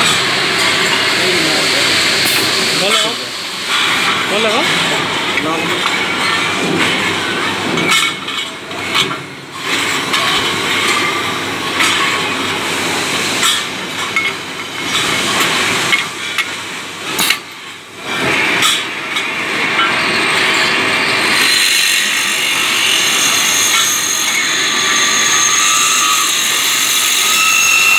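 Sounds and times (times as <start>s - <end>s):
machine hum with high whine: 0.0s - 27.9s.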